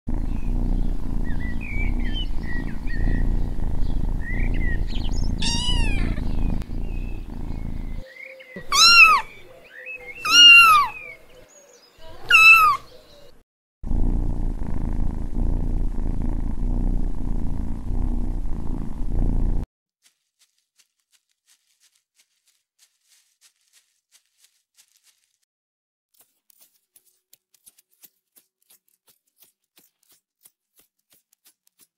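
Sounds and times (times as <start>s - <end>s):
kitten purring: 0.1s - 11.2s, 12.0s - 12.9s, 13.8s - 19.7s
kitten meowing: 5.3s - 6.6s, 8.6s - 9.4s, 10.2s - 11.0s, 12.1s - 12.9s.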